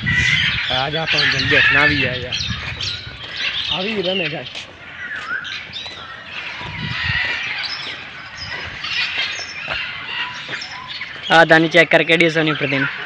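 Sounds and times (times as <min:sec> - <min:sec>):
birds chirping and squawking: 0:00.0 - 0:13.0.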